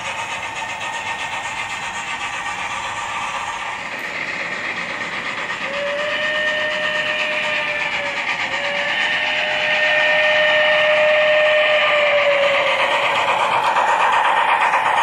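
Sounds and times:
steam locomotive whistle: 5.6 - 14.1.

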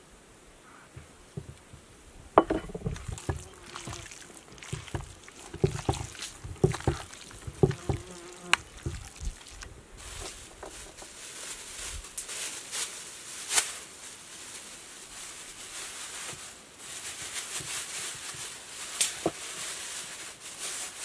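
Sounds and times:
hands kneading raw meat: 2.6 - 11.1.

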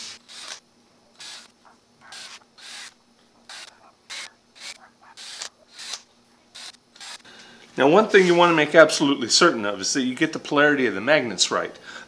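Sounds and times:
cordless drill boring holes: 0.0 - 0.6, 1.2 - 7.3.

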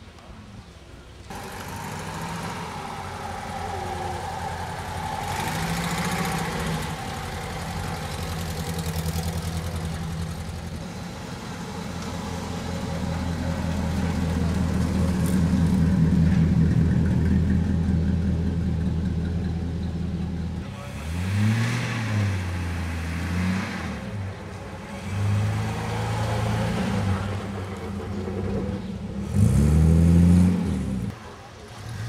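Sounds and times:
car engine idling: 1.3 - 21.1
vehicle engines running: 1.3 - 32.0.

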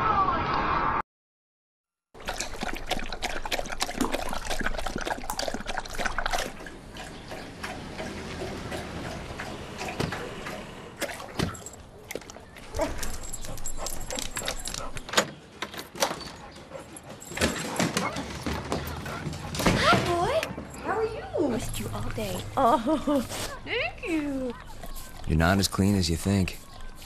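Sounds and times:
dog lapping water: 2.2 - 12.5.

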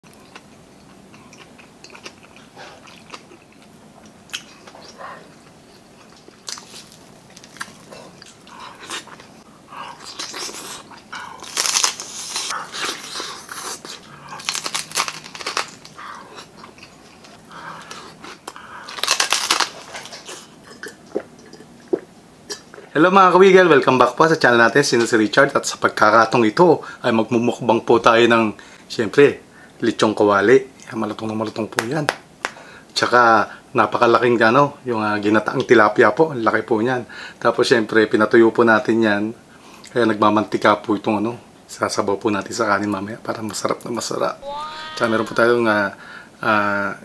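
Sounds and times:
chewing and crunching: 0.0 - 22.8.

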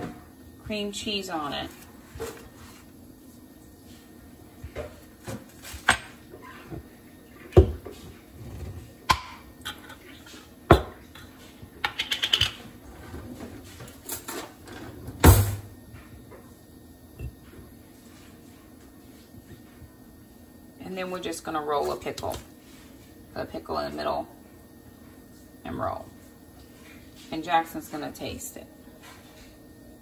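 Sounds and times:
clicks and knocks on countertop: 10.7 - 12.6.

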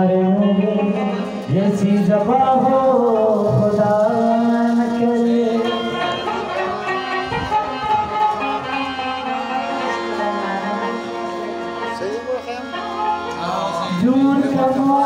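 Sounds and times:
person singing: 0.0 - 8.8, 13.4 - 15.0
harmonium melody: 0.0 - 15.0.

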